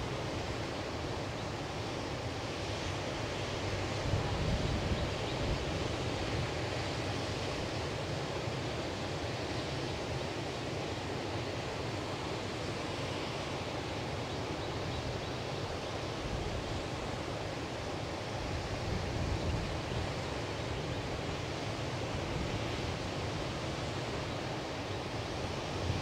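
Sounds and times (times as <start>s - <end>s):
wind rumble on microphone: 3.9s - 6.6s.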